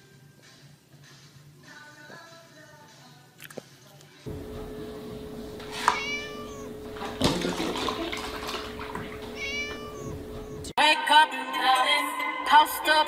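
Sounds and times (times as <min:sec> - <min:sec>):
music: 0:00.0 - 0:04.9, 0:10.3 - 0:13.0
milk pouring into plastic tub: 0:05.2 - 0:10.0
kitten meowing: 0:05.4 - 0:07.0, 0:08.7 - 0:10.7.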